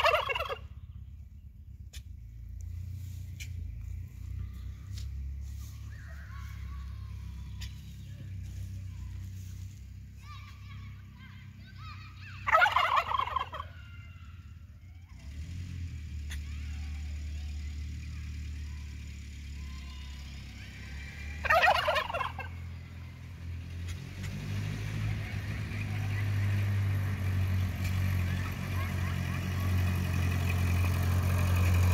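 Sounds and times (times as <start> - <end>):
turkey gobbling: 0.0 - 0.8, 11.8 - 14.3, 20.8 - 22.9
tractor engine running: 0.0 - 31.9.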